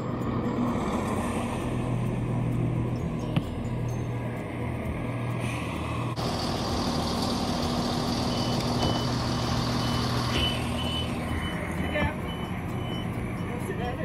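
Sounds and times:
diesel engine idling: 0.0s - 14.0s
high door beeps: 8.3s - 9.2s, 9.8s - 13.1s.

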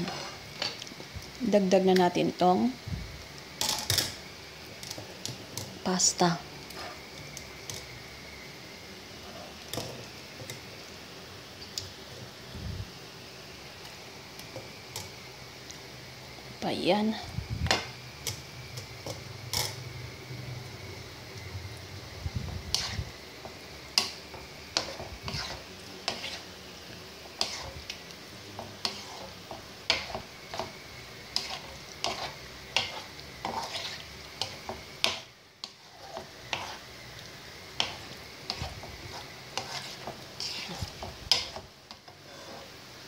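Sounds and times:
spatula scraping and tapping a pan: 0.0s - 0.9s, 3.6s - 4.2s, 9.3s - 10.6s, 22.5s - 26.4s, 27.2s - 36.9s, 37.7s - 42.8s
faint steady hiss: 0.0s - 43.0s.

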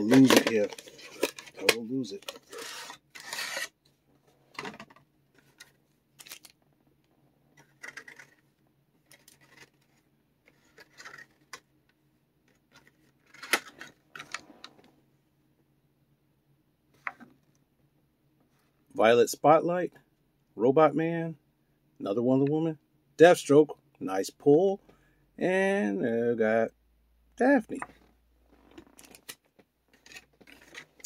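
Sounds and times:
plastic bags crinkling: 6.1s - 6.6s.

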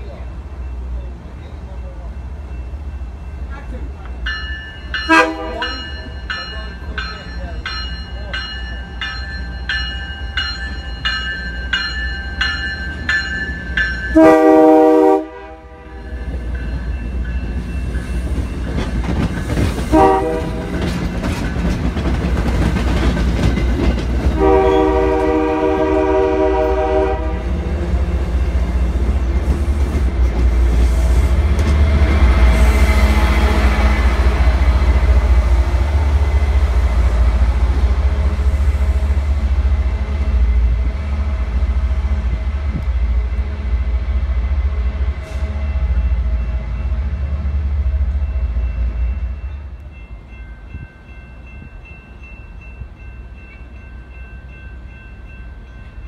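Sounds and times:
train bell ringing: 0.0s - 15.0s, 15.8s - 25.4s, 26.0s - 29.5s, 45.1s - 56.0s
train rumble and wheel clatter: 0.0s - 56.0s
train horn blasts: 5.1s - 5.8s, 14.1s - 16.2s, 19.9s - 20.8s, 24.4s - 27.7s.

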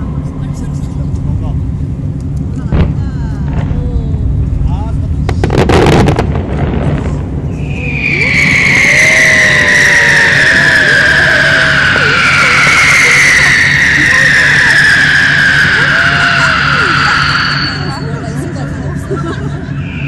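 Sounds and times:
crowd voices: 0.0s - 20.0s
low steady hum: 0.0s - 20.0s
fireworks whistling down in pitch: 5.2s - 20.0s.

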